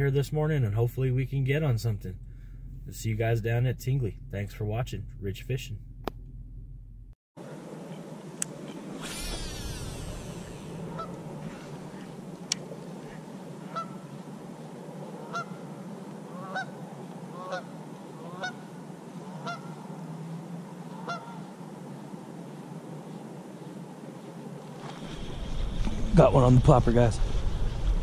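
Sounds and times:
brief swish: 0:08.9 - 0:12.0
geese honking: 0:09.2 - 0:14.2, 0:15.1 - 0:20.0, 0:20.8 - 0:21.6.

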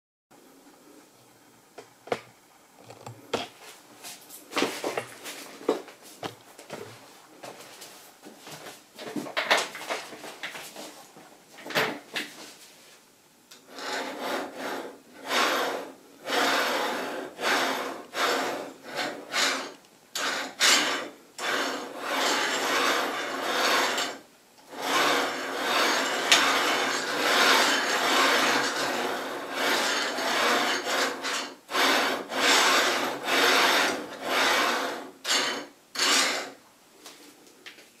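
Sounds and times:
bearing blocks rasping on steel rods: 0:13.6 - 0:36.6.

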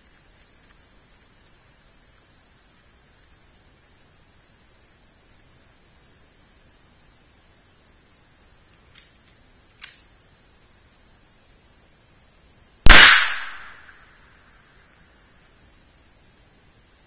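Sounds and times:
pistol shot with echo: 0:12.9 - 0:14.0.

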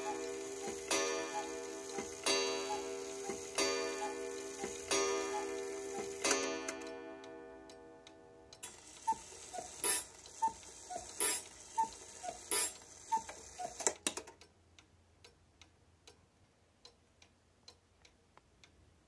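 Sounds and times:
cuckoo clock calling: 0:00.0 - 0:07.4, 0:08.6 - 0:14.1
clock ticking steadily: 0:00.0 - 0:19.0.

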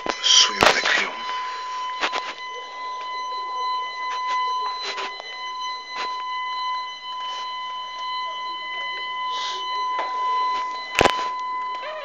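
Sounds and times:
high-pitched electronic tone: 0:00.0 - 0:12.0
phone handling clicks and rustles: 0:10.0 - 0:11.9.

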